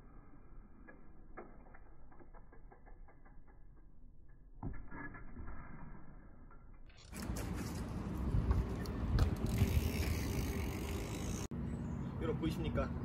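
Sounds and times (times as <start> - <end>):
bike mechanical clicks and rattles: 0.8 - 5.2, 6.4 - 11.5.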